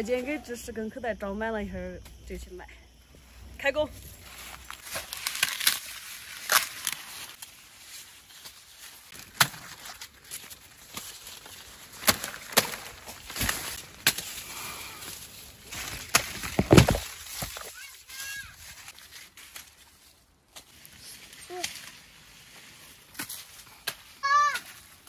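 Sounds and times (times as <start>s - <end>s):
corn leaves rustling: 3.2s - 25.0s
corn ears snapping off stalks: 4.3s - 19.9s, 20.5s - 25.0s.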